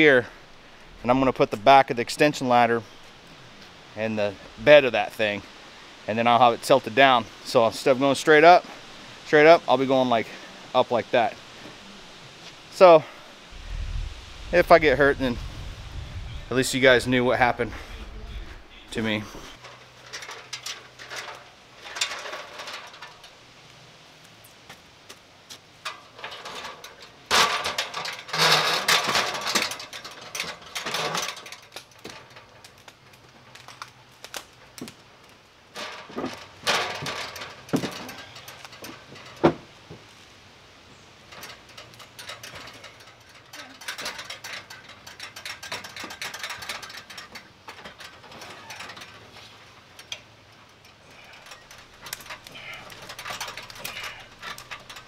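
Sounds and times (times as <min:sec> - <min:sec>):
ladder and metal pipe clattering: 0:16.5 - 0:23.4, 0:25.8 - 0:33.9, 0:35.7 - 0:40.1, 0:41.2 - 0:55.0.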